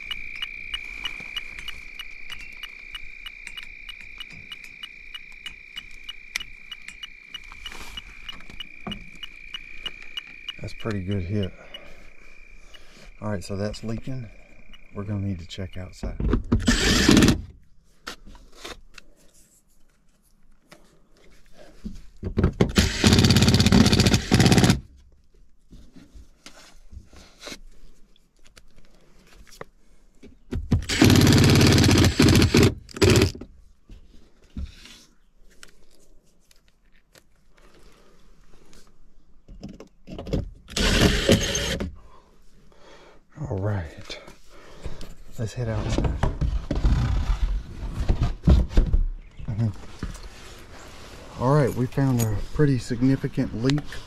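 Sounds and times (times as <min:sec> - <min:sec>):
cordless impact driver driving screws: 0:16.6 - 0:17.4, 0:22.6 - 0:24.8, 0:30.8 - 0:33.4, 0:40.7 - 0:41.9.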